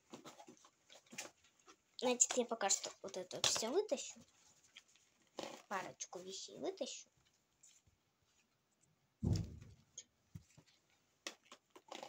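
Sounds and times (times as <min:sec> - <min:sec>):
dull thump: 0:09.2 - 0:10.0.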